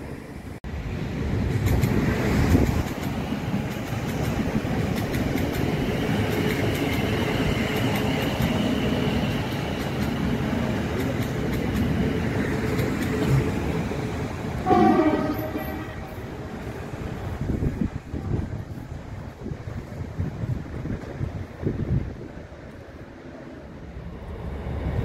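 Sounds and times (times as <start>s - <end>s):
train wheels rumbling on rails: 0.7s - 25.0s
train horn toot: 14.6s - 16.3s.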